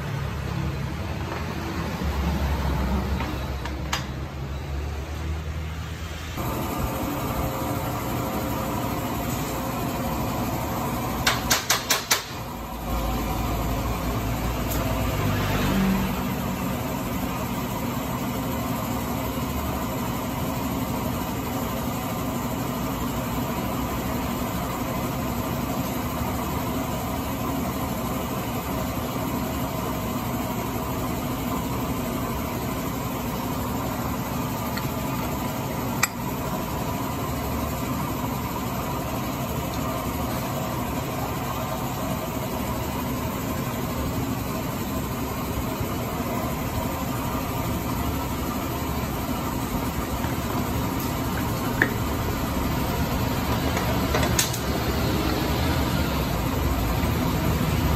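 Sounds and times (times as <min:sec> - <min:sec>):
engine-like drone: 0:00.0 - 0:08.5, 0:12.5 - 0:17.7, 0:34.0 - 0:57.9.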